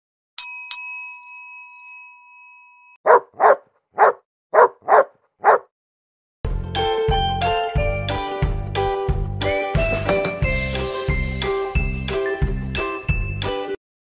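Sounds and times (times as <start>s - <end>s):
dog barking: 3.0s - 5.7s
music: 6.5s - 13.8s.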